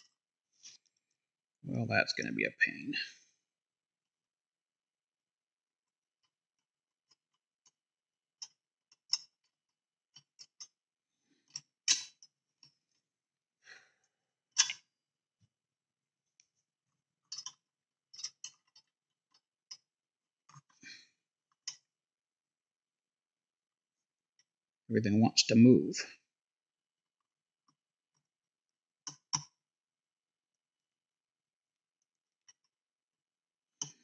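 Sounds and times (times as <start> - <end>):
plastic parts clicking and tapping: 17.3 - 17.6.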